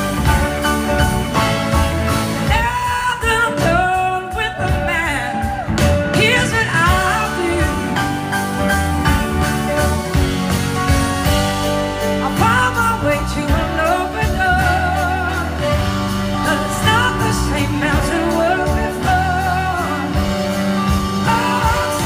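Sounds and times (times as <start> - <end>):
sustained melody notes: 0.0 - 3.1
live blues-rock band playing: 0.0 - 22.0
lead vocal singing: 2.4 - 8.9, 12.0 - 22.0.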